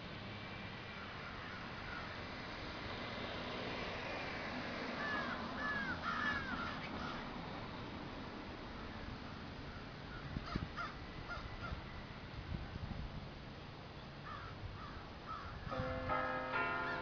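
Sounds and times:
crows cawing: 0:01.2 - 0:02.2, 0:05.0 - 0:07.3, 0:09.7 - 0:11.8, 0:14.2 - 0:15.9.

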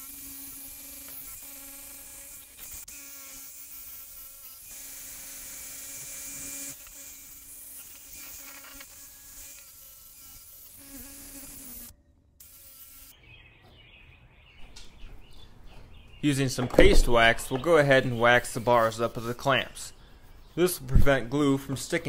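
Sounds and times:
drill with wire brush on steel: 0:00.0 - 0:13.1.

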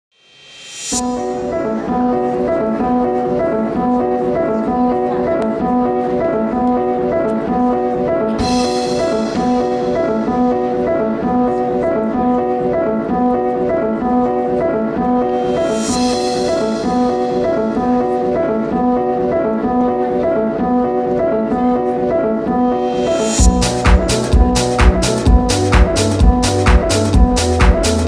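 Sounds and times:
upbeat instrumental dance music: 0:05.5 - 0:19.6, 0:20.5 - 0:28.0.

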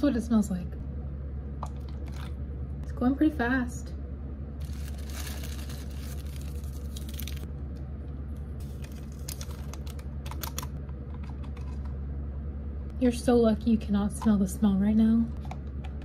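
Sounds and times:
low hum: 0:00.0 - 0:16.0
paper rustling and crinkling: 0:04.6 - 0:07.5, 0:08.6 - 0:10.6
sugar packet tearing: 0:04.6 - 0:07.5, 0:08.6 - 0:10.7.

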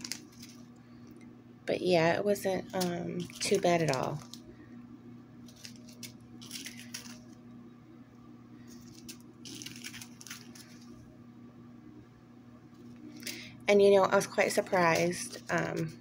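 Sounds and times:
plastic bags crinkling: 0:00.0 - 0:00.8, 0:02.4 - 0:04.5, 0:05.4 - 0:07.4, 0:08.7 - 0:11.0, 0:14.5 - 0:15.9.

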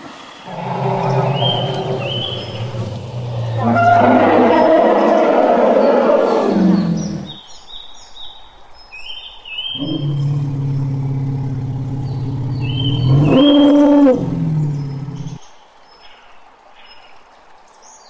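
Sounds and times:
elephant rumbling call: 0:00.0 - 0:07.4, 0:09.8 - 0:15.4
small birds chirping: 0:00.0 - 0:18.0.

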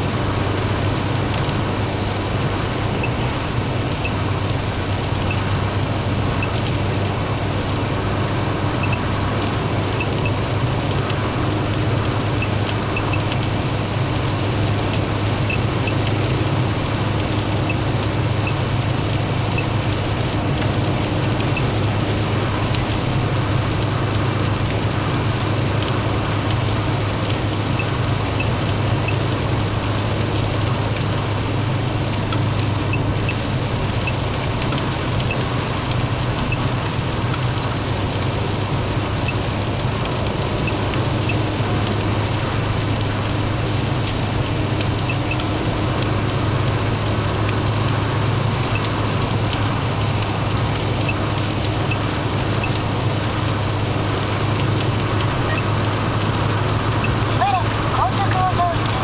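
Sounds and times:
car engine drone: 0:00.0 - 0:59.0.

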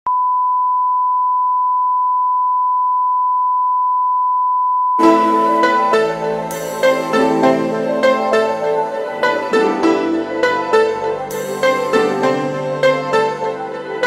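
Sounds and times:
instrumental music: 0:05.0 - 0:14.0.

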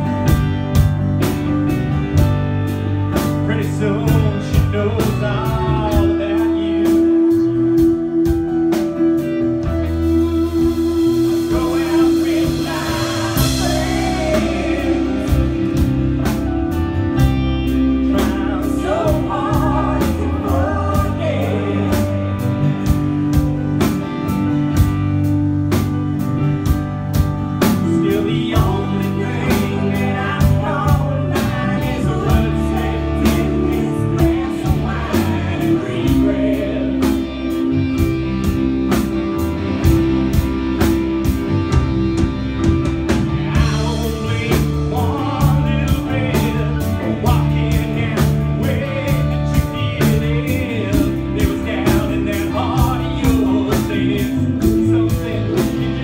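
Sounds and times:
bass guitar: 0:00.0 - 0:56.0
drum kit: 0:00.0 - 0:56.0
electric guitar: 0:00.0 - 0:56.0
voices singing: 0:03.2 - 0:16.5, 0:17.2 - 0:22.9, 0:27.6 - 0:39.2, 0:43.2 - 0:56.0.

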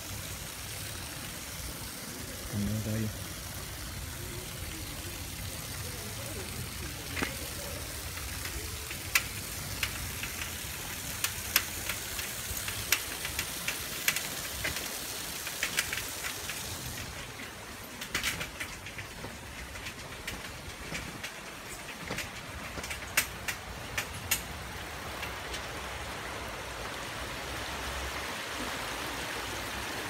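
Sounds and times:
water rushing over concrete step: 0:00.0 - 0:30.0
drain outlet spilling water: 0:00.1 - 0:20.8.

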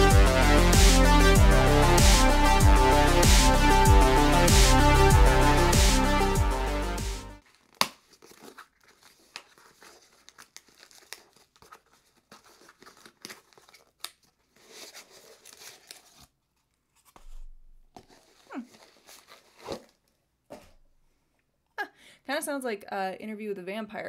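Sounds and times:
packaging crinkling: 0:07.4 - 0:20.2.

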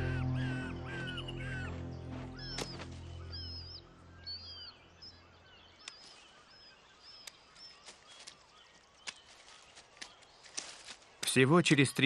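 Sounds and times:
soft background music: 0:00.0 - 0:05.2.

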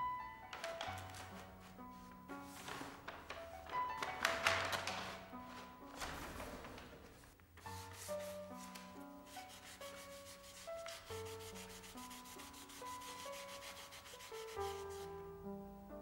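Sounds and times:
soft instrumental music: 0:00.0 - 0:16.0
hand rubbing on paper: 0:07.6 - 0:15.1.

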